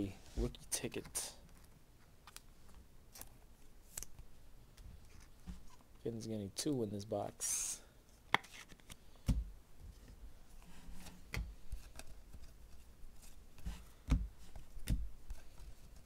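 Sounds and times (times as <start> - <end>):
trading cards flipped by hand: 1.0 - 4.2, 8.3 - 9.0
cards tapping and clicking: 8.3 - 9.4.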